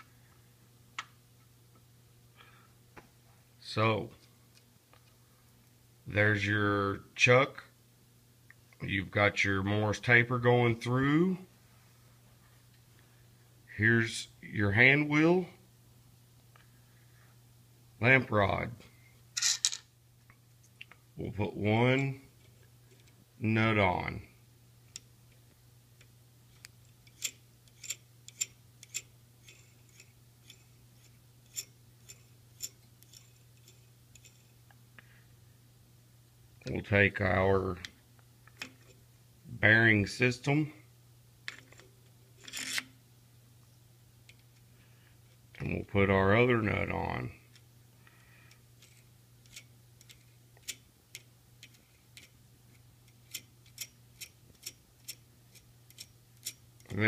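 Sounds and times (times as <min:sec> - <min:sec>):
steady low hum: 0:00.0 - 0:57.0
metallic clicks of nut spinning: 0:26.6 - 0:34.6, 0:41.5 - 0:43.0, 0:48.8 - 0:57.0.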